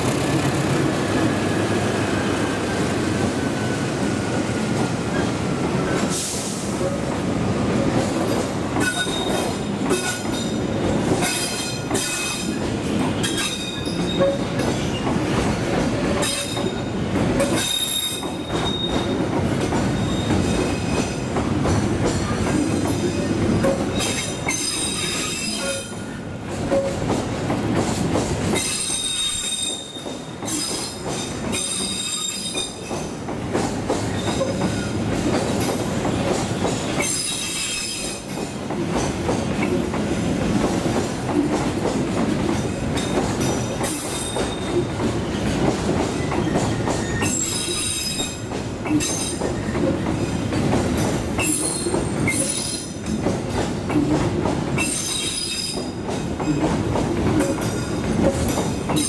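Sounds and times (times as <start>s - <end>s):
train wheels rumbling on rails: 0.0s - 59.0s
train wheels squealing: 8.8s - 12.6s, 13.2s - 15.1s, 16.2s - 19.2s, 19.8s - 21.2s, 22.2s - 26.2s, 28.6s - 33.1s, 34.0s - 35.0s, 36.6s - 38.3s, 43.8s - 45.5s, 46.1s - 49.8s, 51.4s - 53.1s, 54.8s - 56.6s.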